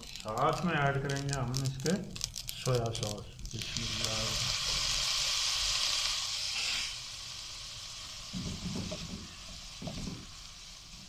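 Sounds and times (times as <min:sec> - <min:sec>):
food sizzling in a wok: 0:00.0 - 0:11.0
wooden spatula scraping wok: 0:08.4 - 0:10.6.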